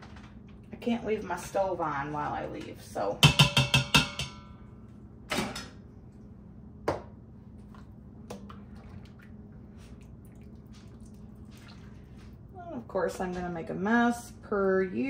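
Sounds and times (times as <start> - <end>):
steady low hum: 0.0 - 15.0
cookware knock: 3.2 - 4.4.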